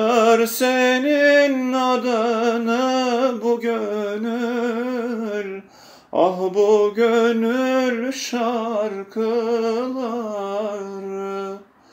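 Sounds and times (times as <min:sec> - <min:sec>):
man singing unaccompanied: 0:00.0 - 0:11.8.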